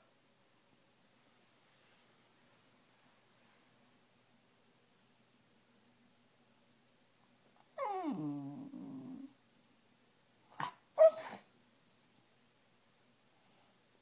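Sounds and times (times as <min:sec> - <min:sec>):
dog grumbling: 0:07.8 - 0:09.3
dog whining: 0:07.8 - 0:09.3, 0:10.6 - 0:11.4
dog barking: 0:10.6 - 0:11.4.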